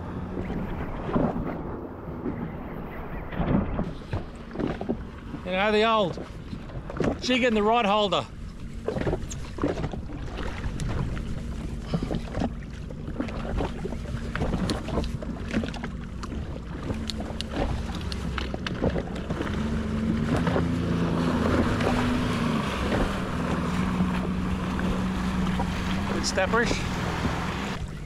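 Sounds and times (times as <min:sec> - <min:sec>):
wind on microphone: 0:00.0 - 0:05.5, 0:16.7 - 0:28.0
water slapping a hull: 0:00.0 - 0:28.0.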